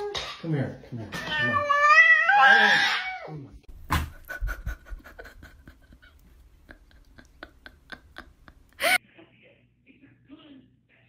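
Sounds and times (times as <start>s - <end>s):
cat meowing: 1.2s - 3.4s.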